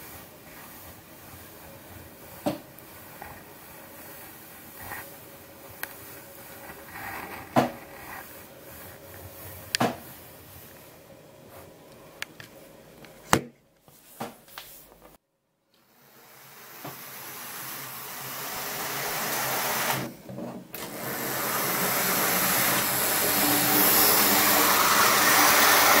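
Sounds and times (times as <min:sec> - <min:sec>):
model train motor whirring: 0:20.8 - 0:26.0.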